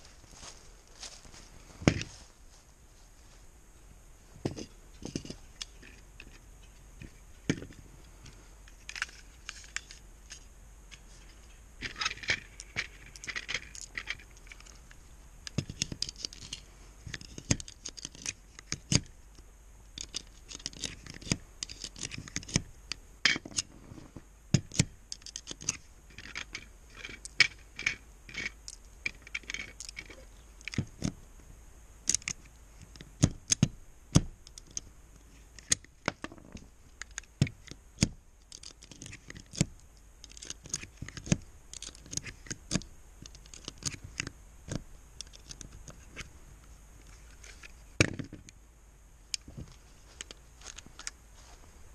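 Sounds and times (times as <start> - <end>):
cartridges scraping and rattling: 4.4 - 19.1, 25.1 - 30.9.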